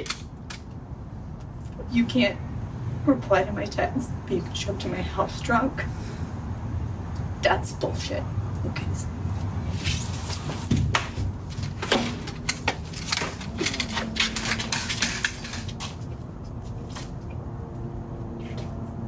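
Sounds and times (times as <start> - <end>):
crutches tapping on concrete: 10.3 - 16.2
front door shutting: 10.6 - 16.0.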